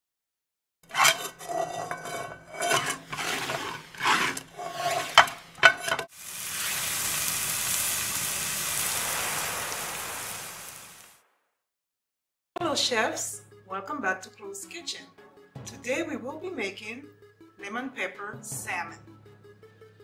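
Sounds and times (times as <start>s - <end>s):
utensil scraping in a pan: 0.8s - 6.2s
herbs sizzling in hot pan: 3.6s - 11.2s.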